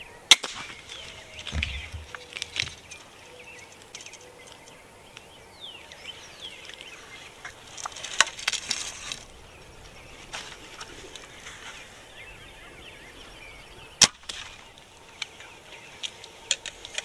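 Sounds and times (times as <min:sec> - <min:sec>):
small birds calling: 0:00.0 - 0:17.0
sharp clicks and rustles: 0:00.4 - 0:03.1, 0:16.0 - 0:17.0.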